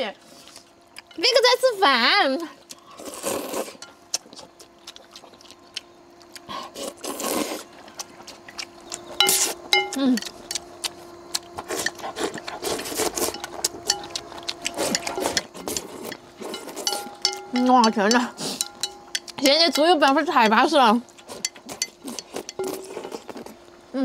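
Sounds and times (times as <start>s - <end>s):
chopsticks clicking against bowls: 9.2s - 12.6s, 13.3s - 22.9s.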